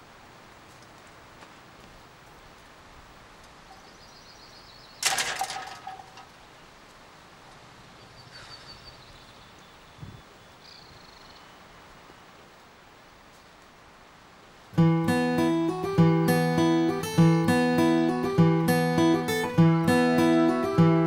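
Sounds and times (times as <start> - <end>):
faint outdoor ambience: 0.0 - 21.0
faint bird chirps: 3.6 - 5.0, 7.9 - 12.1.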